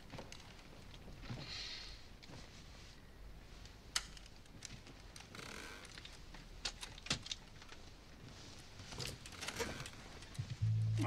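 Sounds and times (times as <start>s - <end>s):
rustling of clothing and bedding: 2.2s - 5.2s, 7.4s - 10.6s.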